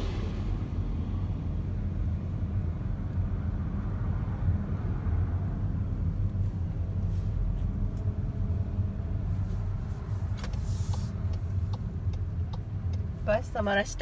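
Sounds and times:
engine and tyre rumble: 0:00.0 - 0:14.0.

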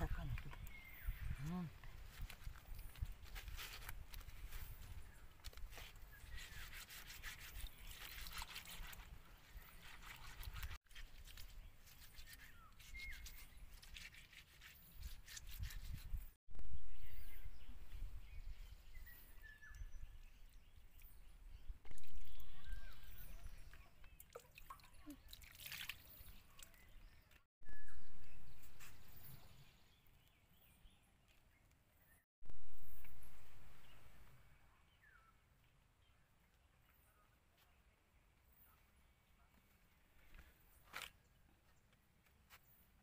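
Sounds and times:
bird chirps: 0:16.6 - 0:35.4
water dripping and trickling: 0:21.9 - 0:26.9.

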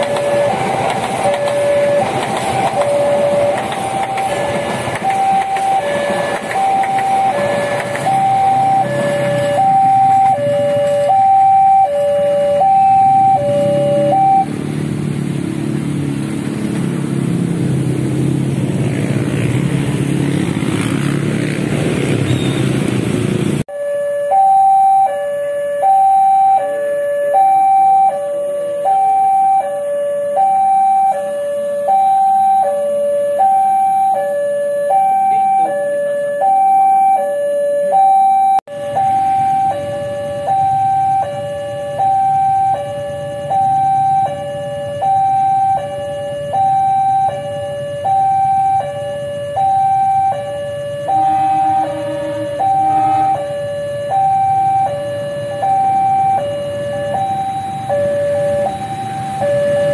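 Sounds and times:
two-tone crossing alarm: 0:00.0 - 0:14.5, 0:23.7 - 0:59.9.

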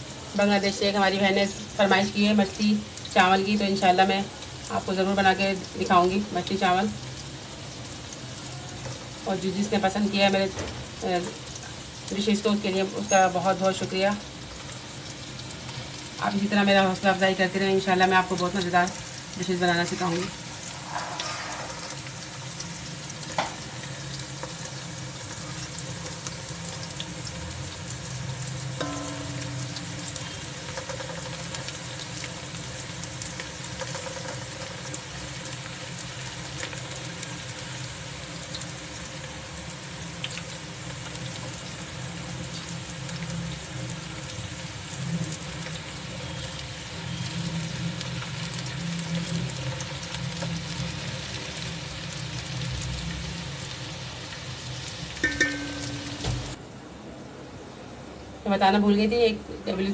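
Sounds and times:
onions sizzling in hot oil: 0:00.0 - 0:56.6.

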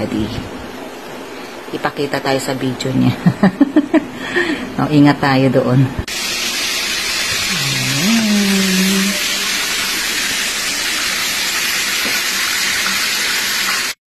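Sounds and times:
loud steady hiss: 0:06.1 - 0:14.0.

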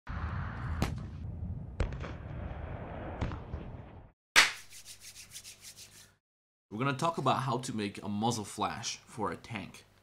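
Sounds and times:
scratchy rubbing: 0:04.6 - 0:06.2.

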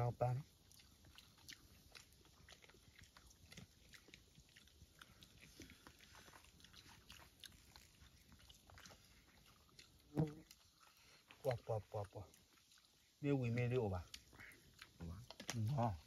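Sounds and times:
person chewing and biting: 0:00.5 - 0:11.4, 0:14.0 - 0:15.8.

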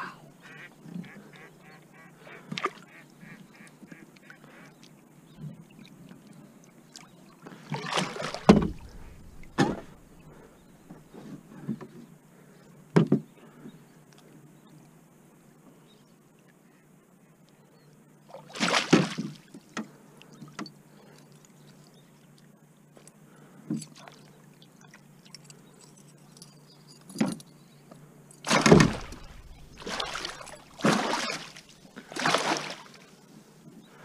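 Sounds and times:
water splashing in a net: 0:07.6 - 0:10.3, 0:18.3 - 0:19.6, 0:28.4 - 0:33.1.

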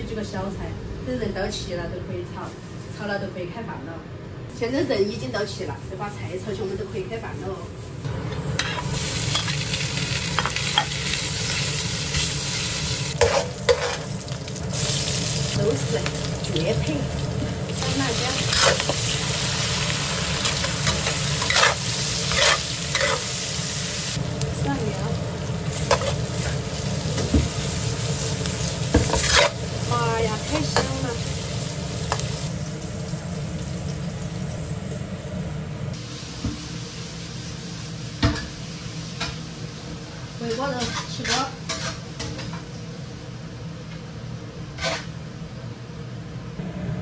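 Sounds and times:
meat sizzling in a wok: 0:04.8 - 0:45.8
pressure cooker noise: 0:08.1 - 0:41.5
metal spatula scraping wok: 0:10.3 - 0:14.2, 0:17.7 - 0:23.5, 0:27.6 - 0:29.7, 0:40.8 - 0:42.4, 0:44.7 - 0:45.2.

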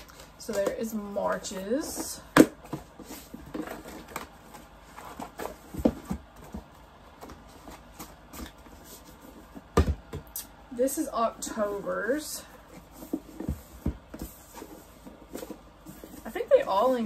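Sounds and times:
cardboard and fabric rustling: 0:00.0 - 0:10.2, 0:10.8 - 0:17.0.

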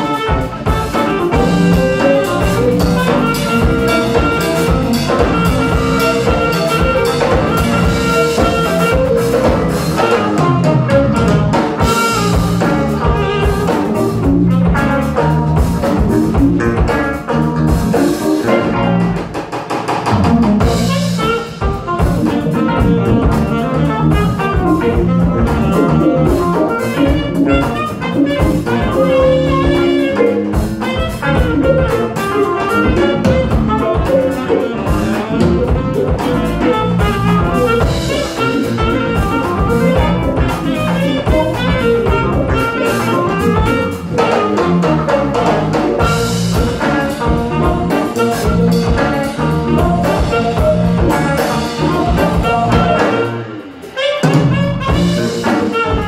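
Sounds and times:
saxophone melody: 0:00.0 - 0:19.4, 0:20.2 - 0:56.0
bass guitar: 0:00.0 - 0:56.0
drum kit: 0:00.0 - 0:56.0
electric guitar: 0:00.0 - 0:56.0
keyboard: 0:00.0 - 0:56.0.

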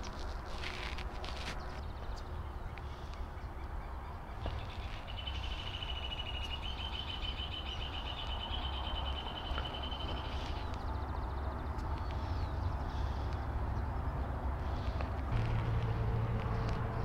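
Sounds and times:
steady low rumble: 0:10.1 - 0:17.0.

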